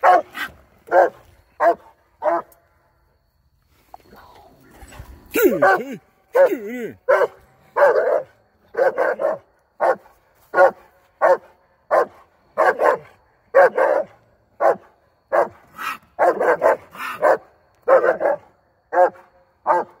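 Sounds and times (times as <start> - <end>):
dog barking: 0.0 - 2.5, 5.4 - 20.0.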